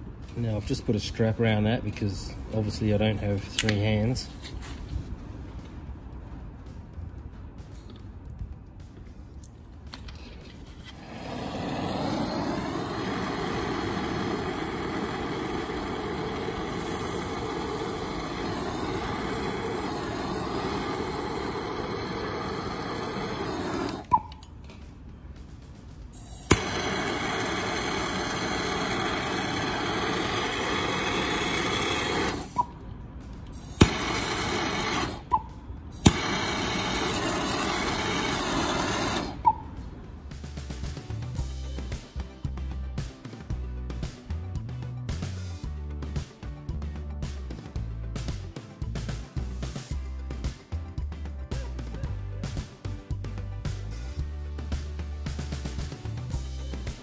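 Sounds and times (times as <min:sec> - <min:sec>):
blowtorch clicks: 0:03.4 - 0:04.0, 0:09.4 - 0:24.6, 0:26.2 - 0:32.8, 0:33.5 - 0:39.6
blowtorch flame hissing: 0:10.5 - 0:24.2, 0:26.2 - 0:32.7, 0:33.5 - 0:39.6.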